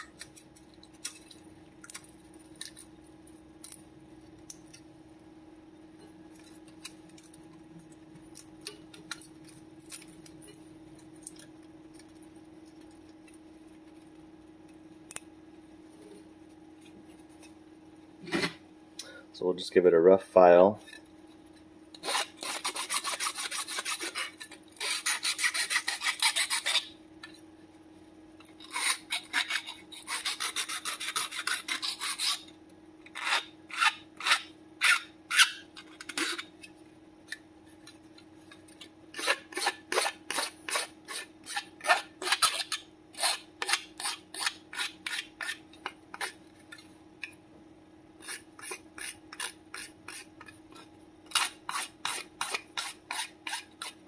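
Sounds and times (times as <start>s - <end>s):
hand file rasping on plastic: 22.0s - 26.9s, 28.6s - 32.4s.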